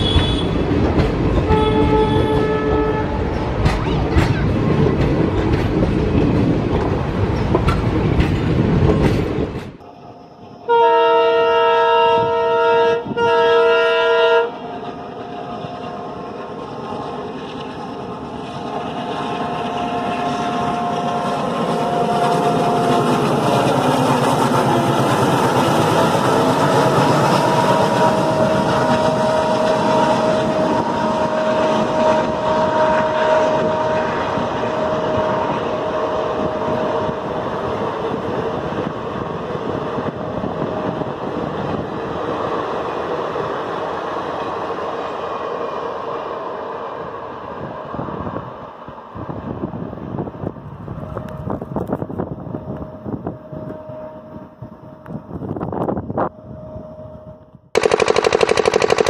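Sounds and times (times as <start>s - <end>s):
two-tone locomotive horn: 0.0s - 0.7s, 1.4s - 3.4s, 10.6s - 14.7s, 19.4s - 23.3s, 25.8s - 37.4s, 52.4s - 57.5s
train wheels clattering on rails: 0.0s - 9.9s, 14.6s - 45.0s
diesel locomotive engine running: 0.0s - 46.6s, 49.4s - 59.0s.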